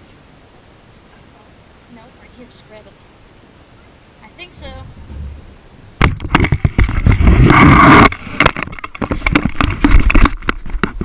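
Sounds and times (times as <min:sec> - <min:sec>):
loud scraping rub: 0:06.9 - 0:08.6.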